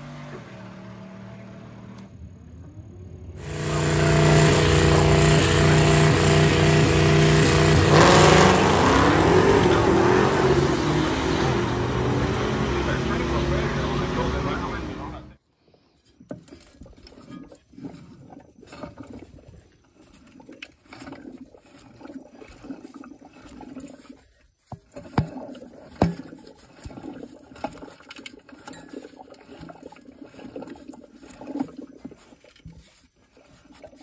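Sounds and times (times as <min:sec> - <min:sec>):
hand rustling and scraping on metal: 0:23.8 - 0:34.0.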